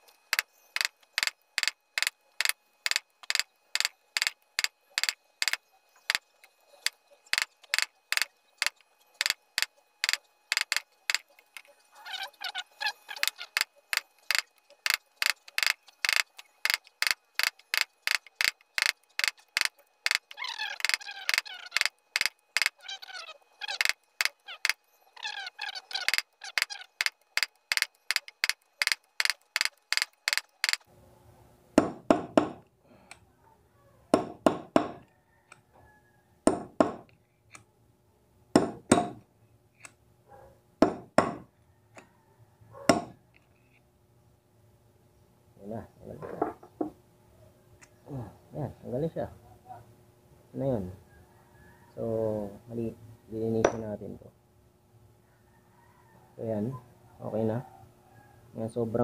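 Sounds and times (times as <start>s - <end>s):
hammer striking steel punch: 34.2s - 35.0s, 38.6s - 39.2s.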